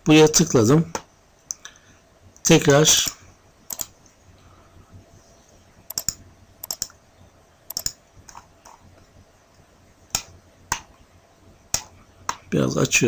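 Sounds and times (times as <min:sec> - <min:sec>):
computer mouse clicking: 0:03.7 - 0:04.0, 0:05.9 - 0:07.0, 0:07.7 - 0:08.8.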